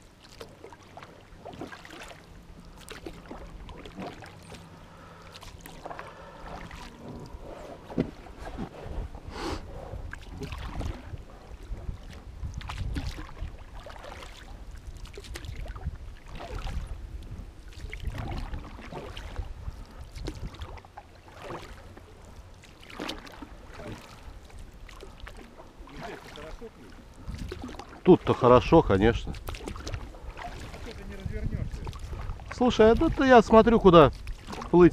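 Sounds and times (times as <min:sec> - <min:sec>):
paddle swishing and splashing water: 0:00.0 - 0:34.9
wind rumble on microphone: 0:06.2 - 0:20.8, 0:26.9 - 0:34.9.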